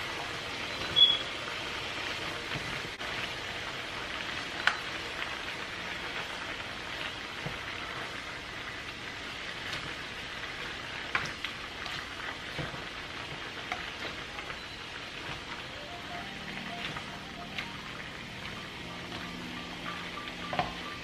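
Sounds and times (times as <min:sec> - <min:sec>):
food sizzling in a frying pan: 0:00.0 - 0:21.0.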